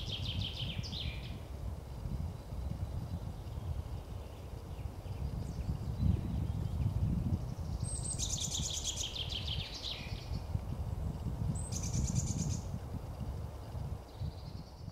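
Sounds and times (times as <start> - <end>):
songbird trilling: 7.6 - 10.5, 11.6 - 12.7.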